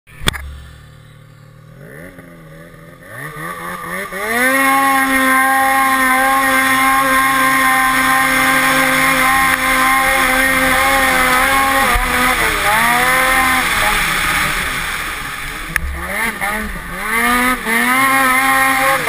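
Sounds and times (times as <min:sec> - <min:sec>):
sharp click: 0:00.2 - 0:00.7
snowmobile engine revving: 0:00.2 - 0:19.0.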